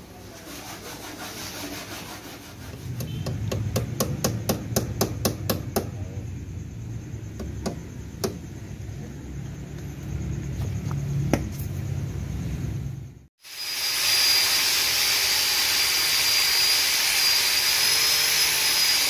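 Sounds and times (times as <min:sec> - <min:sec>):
hand tool tapping on metal: 0:02.8 - 0:06.0, 0:07.4 - 0:08.4.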